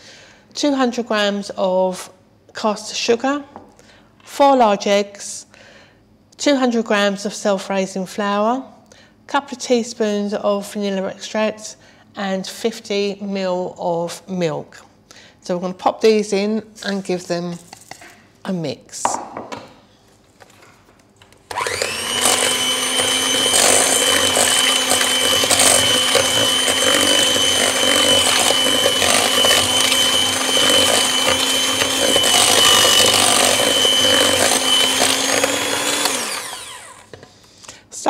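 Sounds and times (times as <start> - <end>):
electric hand mixer whining: 21.5 - 37.2.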